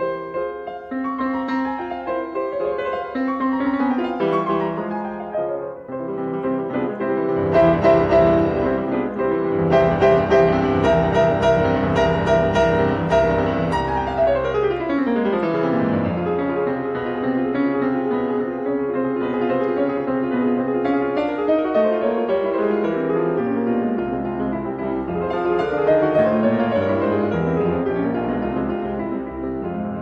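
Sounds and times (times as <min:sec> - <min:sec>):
piano music: 0:00.0 - 0:30.0.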